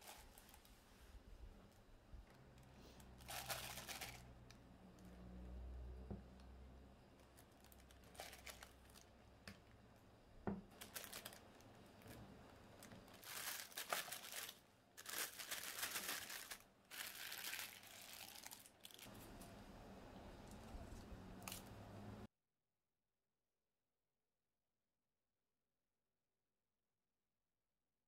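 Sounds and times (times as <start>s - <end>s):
plastic piping bag crinkling: 0.0s - 0.7s, 2.9s - 4.4s, 7.2s - 9.2s, 10.7s - 19.3s.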